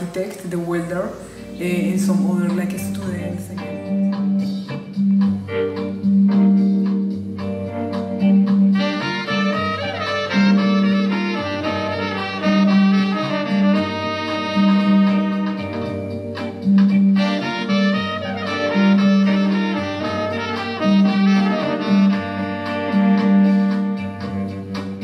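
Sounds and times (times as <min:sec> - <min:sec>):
jazz bass line: 0:00.0 - 0:25.0
horn melody: 0:08.7 - 0:16.5, 0:17.1 - 0:25.0.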